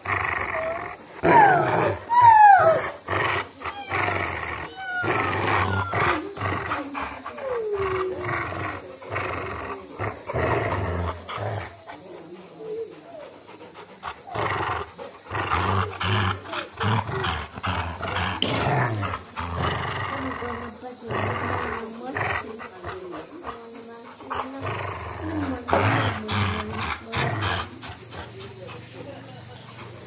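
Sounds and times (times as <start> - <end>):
dogs growling and grunting: 0.0 - 30.0
dog whining: 0.4 - 3.0, 3.6 - 8.2.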